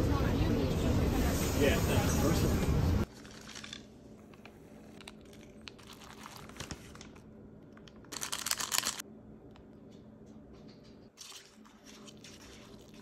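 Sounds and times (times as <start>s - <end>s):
plastic packaging crinkling: 3.1s - 9.0s.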